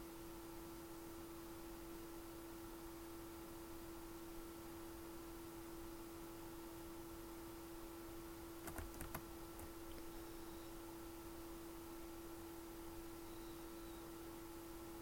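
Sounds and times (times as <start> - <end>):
faint steady hum: 0.0 - 15.0
computer keyboard key presses: 8.6 - 10.1.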